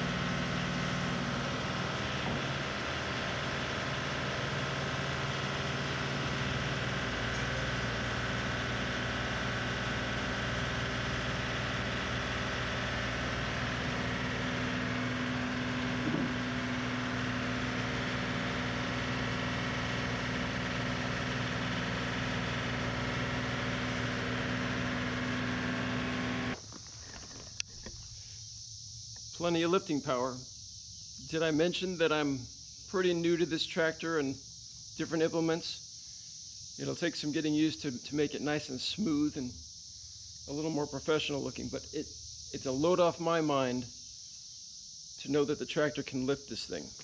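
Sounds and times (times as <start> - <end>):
tractor diesel engine running: 0.0 - 28.2.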